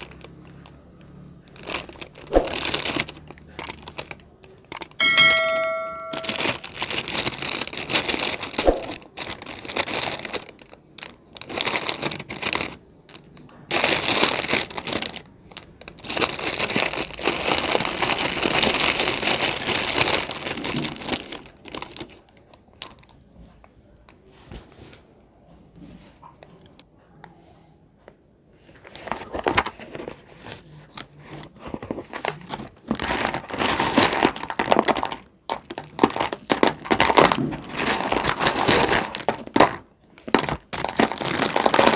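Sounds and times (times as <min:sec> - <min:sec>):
foil packet crinkling: 0:00.0 - 0:23.2, 0:28.9 - 0:41.9
clay chunks shaken out: 0:01.6 - 0:04.2.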